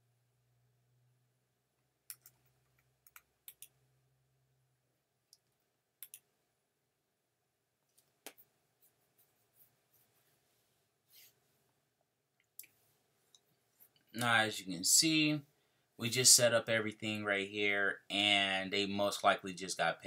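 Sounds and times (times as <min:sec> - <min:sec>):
faint low hum: 0:00.0 - 0:20.0
mouse and keyboard clicks: 0:02.1 - 0:03.7, 0:05.3 - 0:06.2.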